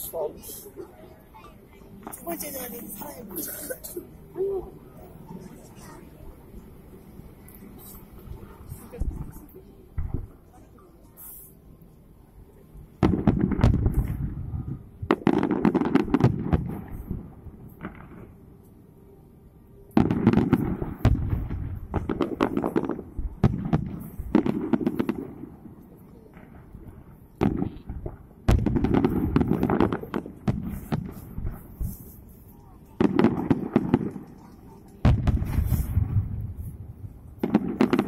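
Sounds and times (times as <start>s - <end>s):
fireworks bursting: 7.2s - 11.6s, 13.0s - 18.7s, 19.8s - 38.0s.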